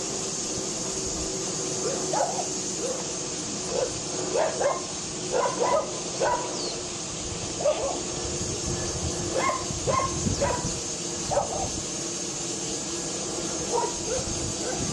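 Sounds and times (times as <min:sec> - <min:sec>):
dog barking: 0:01.8 - 0:03.0, 0:03.7 - 0:06.6, 0:07.6 - 0:08.0, 0:09.4 - 0:10.6, 0:11.3 - 0:11.7, 0:13.7 - 0:14.9.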